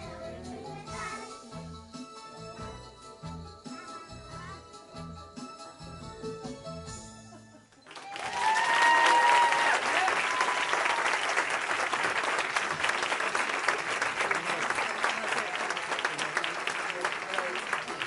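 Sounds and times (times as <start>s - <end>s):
audience applauding: 7.8s - 18.0s
high cheer: 7.9s - 12.3s.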